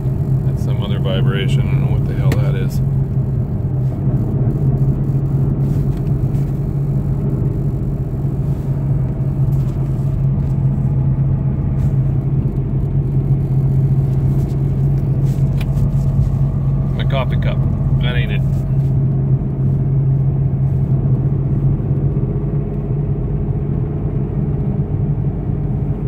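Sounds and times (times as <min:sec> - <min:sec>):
rubbing clicks from engine fan: 0:00.0 - 0:23.8
car engine droning: 0:00.0 - 0:26.0.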